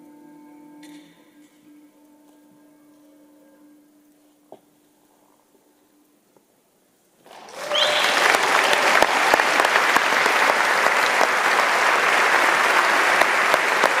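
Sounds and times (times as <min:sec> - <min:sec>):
audience applause: 0:07.2 - 0:14.0.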